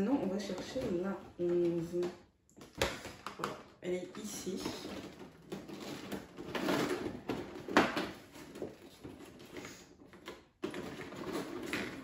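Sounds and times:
cardboard rustling and scraping: 4.4 - 12.0.

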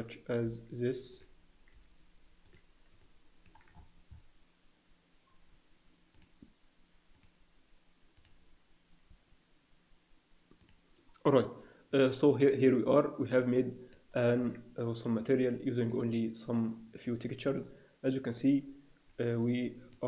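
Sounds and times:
computer mouse clicks: 2.4 - 4.2, 6.1 - 6.5, 7.1 - 7.4, 8.2 - 8.4, 10.5 - 11.2.

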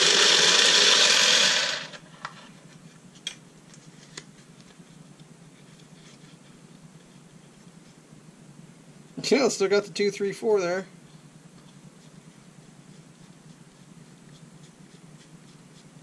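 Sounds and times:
card shuffler mechanical whir: 0.0 - 2.1.

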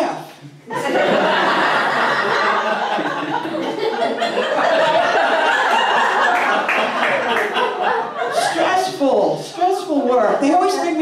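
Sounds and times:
audience laughing: 0.7 - 9.1.

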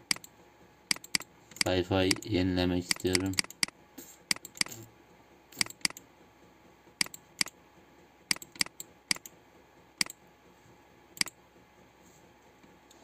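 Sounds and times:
computer mouse clicking: 0.0 - 0.3, 0.9 - 2.3, 2.9 - 4.8, 5.5 - 6.1, 7.0 - 7.6, 8.3 - 9.4, 10.0 - 10.2, 11.2 - 11.4.

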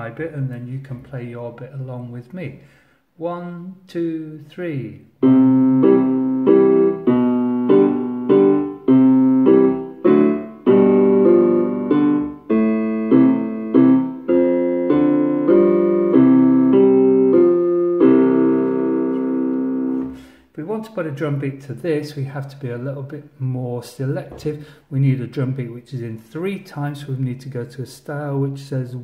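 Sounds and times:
electronic keyboard waltz: 5.2 - 20.3.

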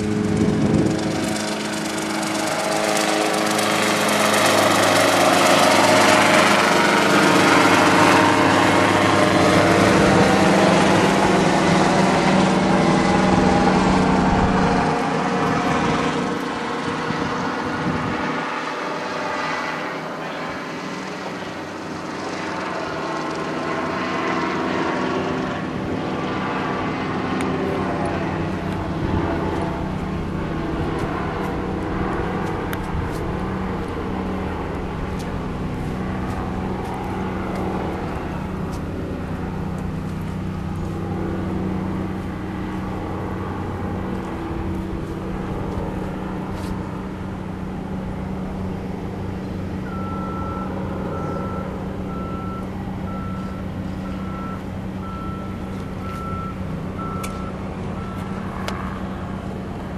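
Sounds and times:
engine running: 0.0 - 59.9.

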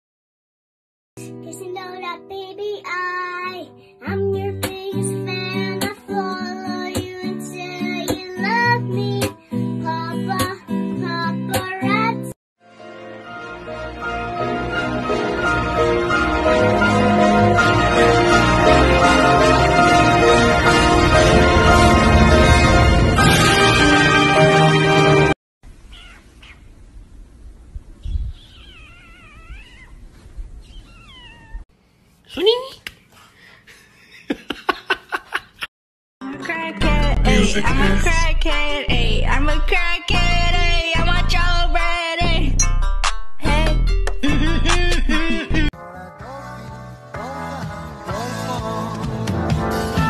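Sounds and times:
puppy whining: 25.9 - 26.7, 28.3 - 31.6
high singing voice: 36.2 - 42.7.

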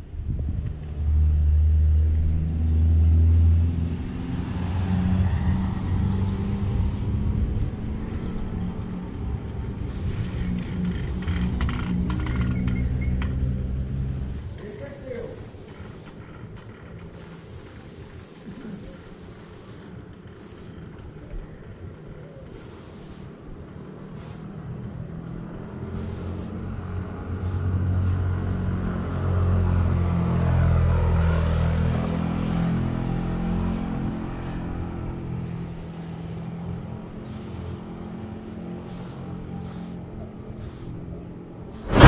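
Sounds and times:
vehicle rumble: 0.0 - 42.0
spray-paint can hissing: 3.3 - 7.9, 9.8 - 11.6, 13.9 - 16.2, 17.2 - 20.8, 22.5 - 23.4, 24.1 - 24.6, 25.9 - 26.6, 27.4 - 30.3, 32.3 - 33.8, 35.4 - 36.6, 37.2 - 37.9, 38.8 - 41.0.

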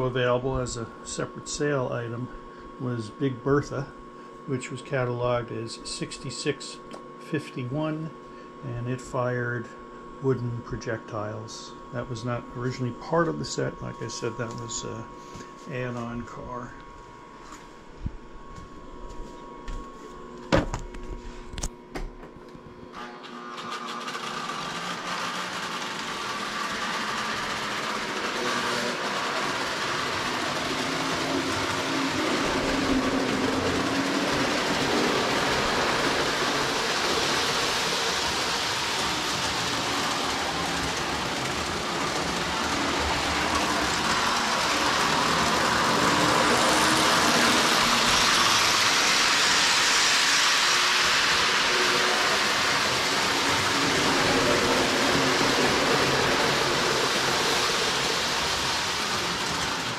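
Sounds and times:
toy train rumbling on track: 23.1 - 59.9.

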